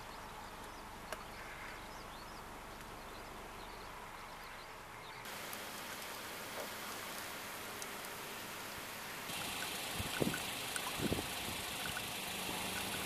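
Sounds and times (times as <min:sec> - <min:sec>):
small birds chirping: 0:00.0 - 0:08.3, 0:09.1 - 0:13.0
light rain: 0:05.3 - 0:13.0
steady hiss: 0:05.3 - 0:13.0.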